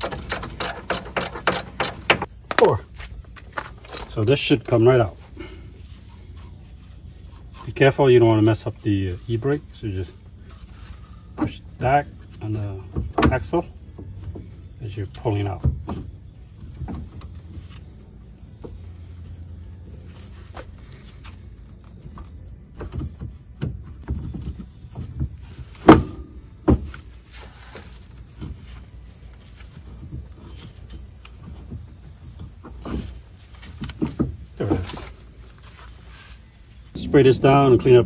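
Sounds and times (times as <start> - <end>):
metal parts clunking and clinking: 0.0 - 2.3, 3.5 - 4.4
insects droning: 0.0 - 38.0.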